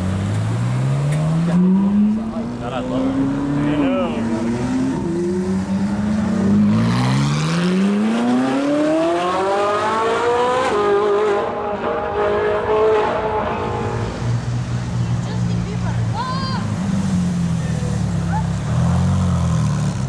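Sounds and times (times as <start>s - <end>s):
car engine accelerating hard: 0.0s - 14.1s.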